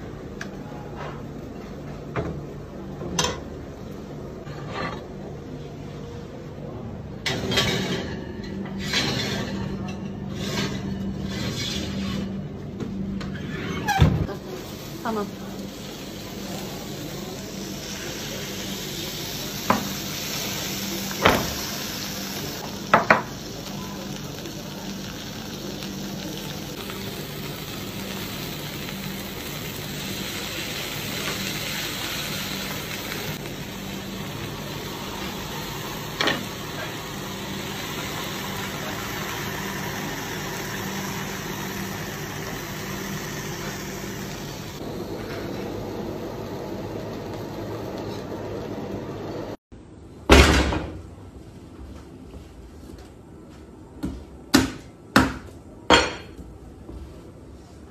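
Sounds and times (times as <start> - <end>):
hot food sizzling: 14.3 - 49.6.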